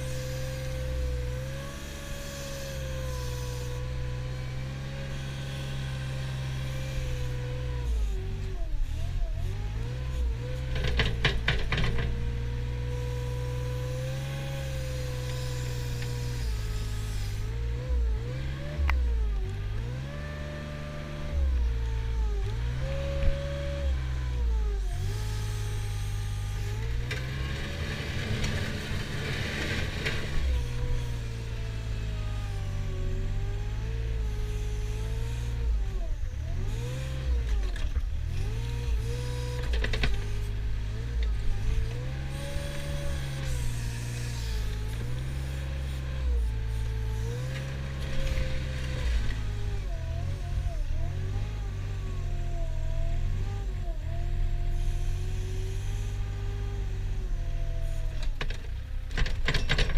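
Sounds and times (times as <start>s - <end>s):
loader diesel engine: 0.0s - 59.9s
rattle: 57.8s - 59.9s.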